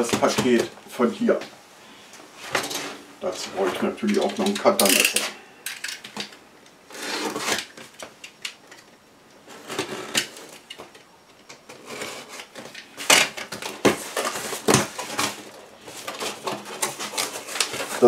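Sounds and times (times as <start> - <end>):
cardboard and tape rustling: 0.0 - 1.5, 2.4 - 5.4, 6.0 - 18.0
box cutter cutting cardboard: 6.9 - 7.6.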